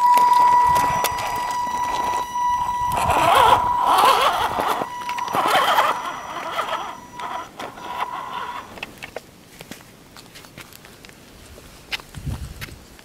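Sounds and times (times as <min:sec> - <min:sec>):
electric motor whining: 0:00.0 - 0:09.1
tyres clicking on rock: 0:02.9 - 0:13.0.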